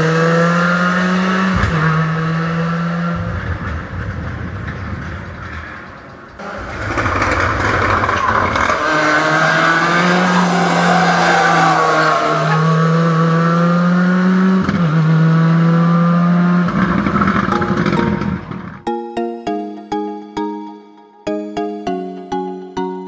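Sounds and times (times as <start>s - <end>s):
rally car engine at high revs: 0.0s - 4.4s, 6.4s - 17.5s.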